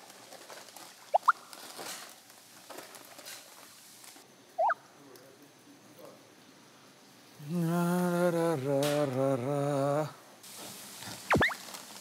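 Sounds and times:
food packaging clatter: 0.0s - 4.2s
short high rising squeaks: 11.3s - 11.6s.

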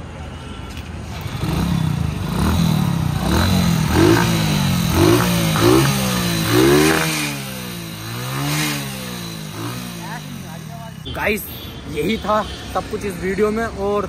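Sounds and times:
motorcycle engine revving: 1.1s - 11.4s.

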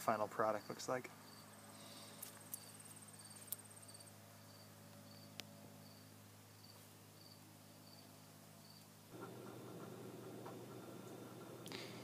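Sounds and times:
faint cricket chirping: 0.6s - 9.0s.

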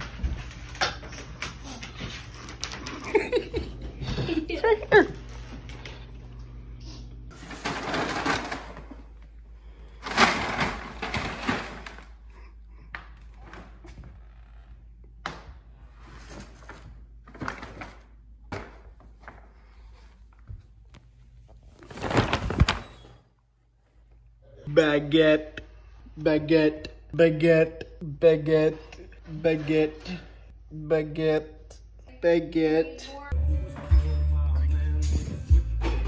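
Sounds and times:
paper bag rustling: 7.3s - 12.2s, 21.7s - 23.2s.

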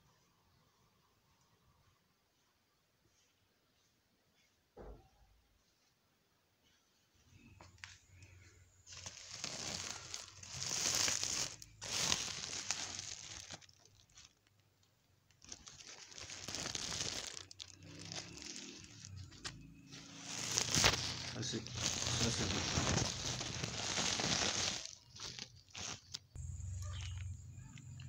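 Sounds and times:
plastic sacks crinkling: 7.8s - 14.6s, 15.3s - 27.3s.

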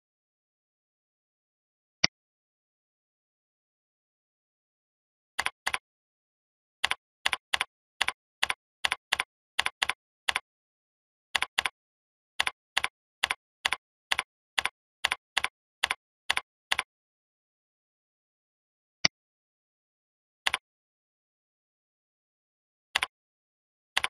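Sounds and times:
computer keyboard typing: 5.4s - 5.8s, 6.8s - 10.4s, 11.4s - 11.8s, 12.4s - 16.9s.

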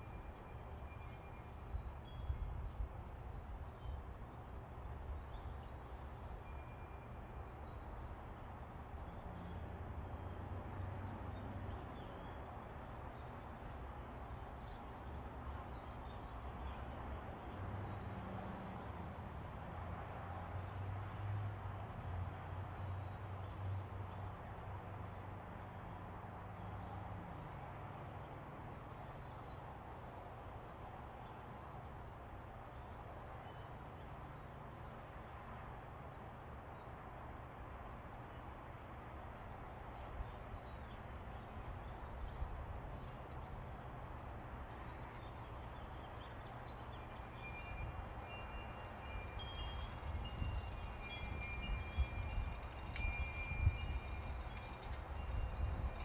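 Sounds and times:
metal wind chimes ringing: 46.8s - 56.0s.

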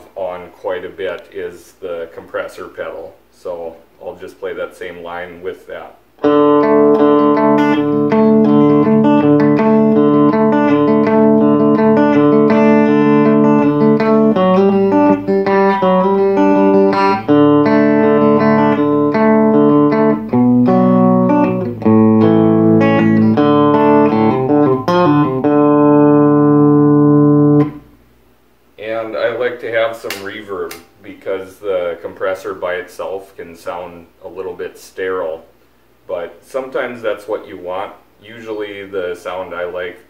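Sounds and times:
electric guitar country lead: 6.2s - 27.9s.

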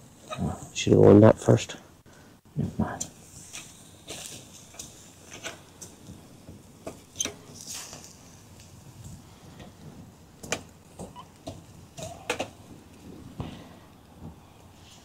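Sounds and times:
charcoal crackling and popping: 0.0s - 15.0s
meat sizzling on a grill: 3.0s - 13.4s.

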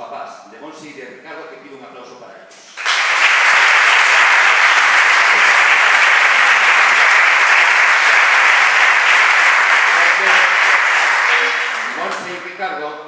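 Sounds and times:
audience applauding: 2.7s - 12.6s.

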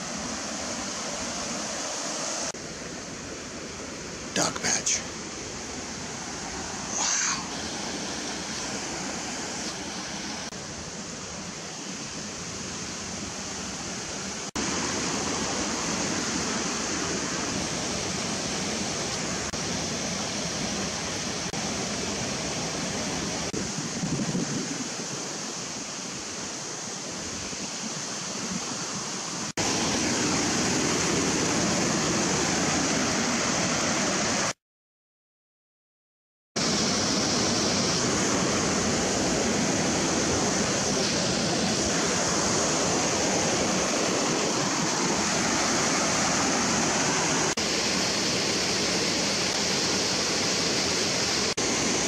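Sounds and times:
fast-flowing water rushing: 0.0s - 34.6s, 36.6s - 52.0s.

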